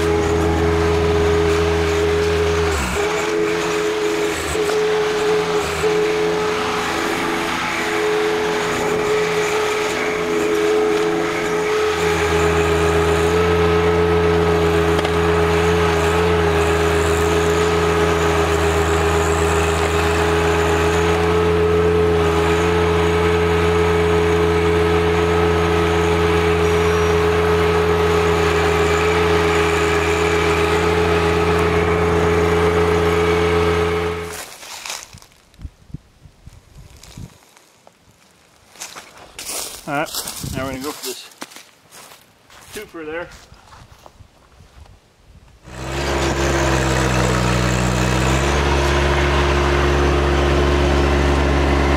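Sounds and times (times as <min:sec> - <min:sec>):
deeper drone: 0:00.0 - 0:34.4, 0:45.6 - 0:51.9
steady whine: 0:00.0 - 0:34.4
tractor engine under load: 0:00.0 - 0:35.6, 0:45.5 - 0:51.9.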